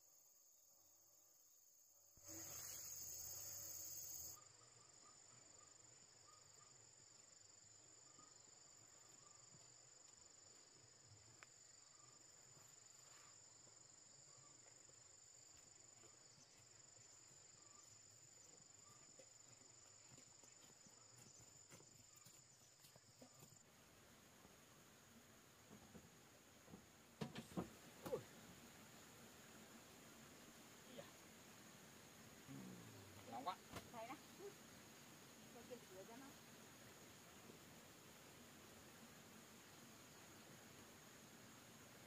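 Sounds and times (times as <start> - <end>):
high-pitched insect chorus: 0.0 - 4.8.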